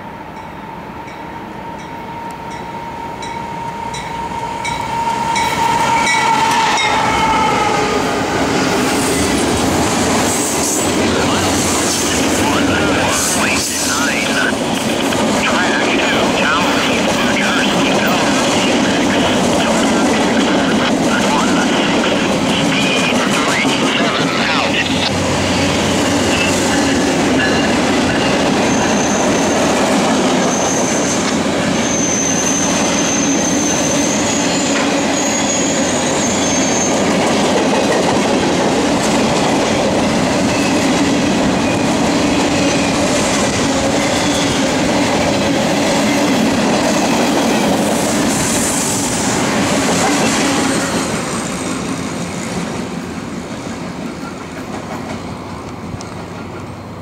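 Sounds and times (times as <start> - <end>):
high wheel squeal: 2.0 - 7.9, 24.8 - 29.8, 30.4 - 37.1, 50.1 - 51.6.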